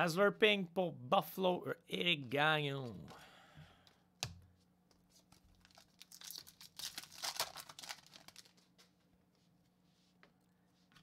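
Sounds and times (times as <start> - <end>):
foil wrapper tearing and crinkling: 5.4 - 8.6.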